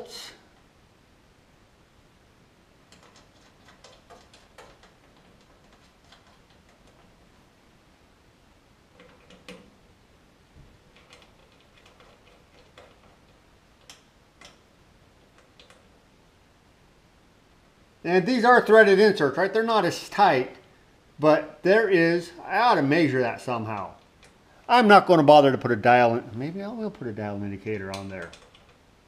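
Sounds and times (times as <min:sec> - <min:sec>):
bolts clicking into metal inserts: 0:27.8 - 0:28.8.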